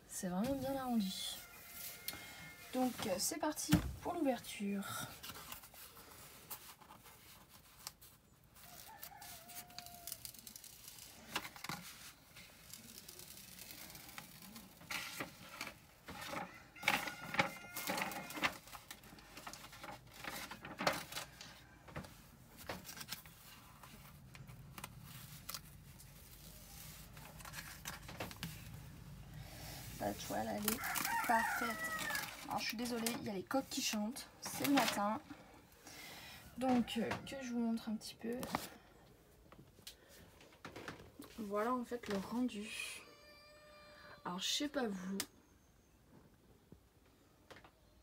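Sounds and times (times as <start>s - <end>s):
rooster crowing: 1.3s - 2.8s, 16.4s - 18.5s, 30.7s - 32.4s, 43.0s - 44.3s
paper and plastic film crinkling: 5.0s - 35.5s, 38.4s - 38.8s
film peeling: 5.2s - 35.5s.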